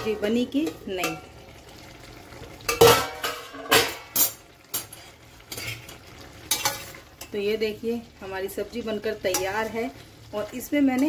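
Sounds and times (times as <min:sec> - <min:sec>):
metal pan lid clanking: 0:02.6 - 0:05.9, 0:06.5 - 0:07.3
spatula scraping metal pan: 0:02.8 - 0:06.9.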